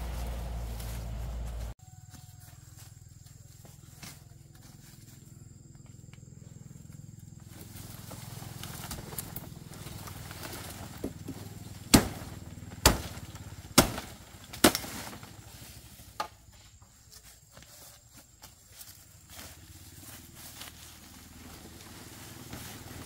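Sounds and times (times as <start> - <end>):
machete chopping undergrowth: 10.0 - 16.4.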